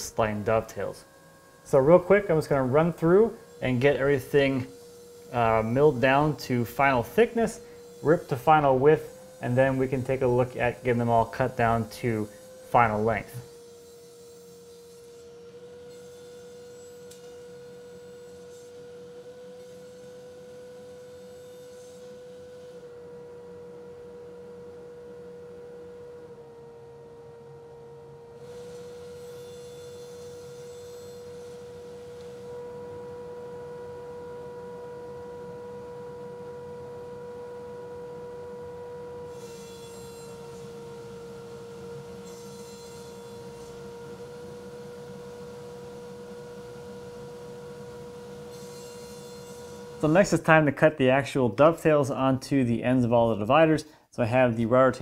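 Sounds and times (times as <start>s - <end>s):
steady hum with stepping pitch: 0.0s - 13.5s.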